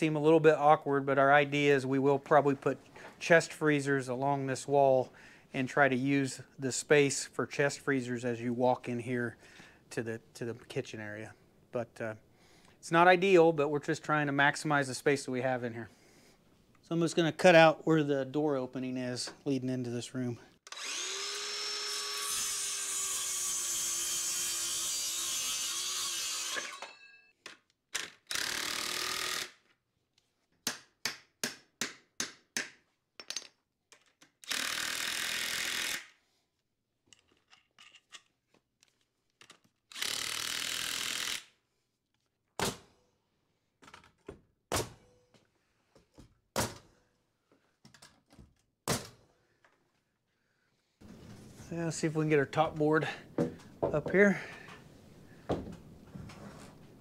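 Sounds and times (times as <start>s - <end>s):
circular saw cutting wood: 20.7s - 26.9s.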